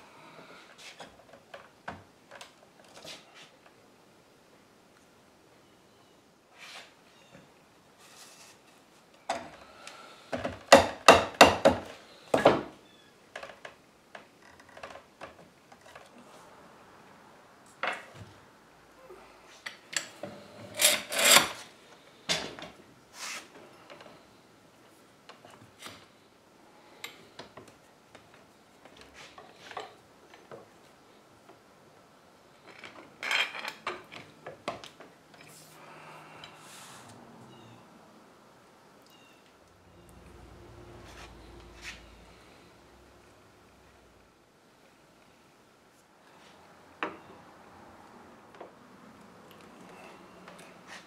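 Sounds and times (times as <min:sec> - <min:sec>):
hammer knocking wooden joints: 0:10.7 - 0:11.9.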